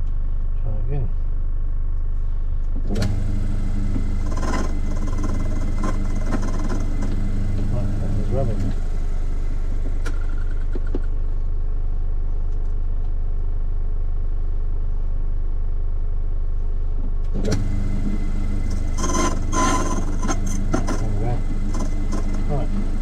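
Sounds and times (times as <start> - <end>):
key-cutting machine motor humming: 2.9 - 10.4, 17.4 - 23.0.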